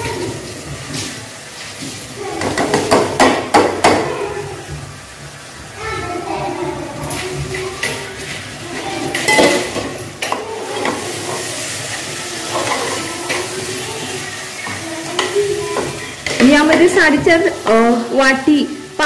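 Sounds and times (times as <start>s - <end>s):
food sizzling in a pot: 0.0s - 19.0s
ladle scraping and clinking pot: 7.8s - 13.7s.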